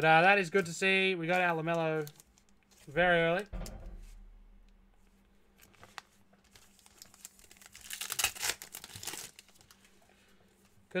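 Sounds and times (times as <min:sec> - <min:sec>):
foil wrapper tearing and crinkling: 0:05.9 - 0:09.8.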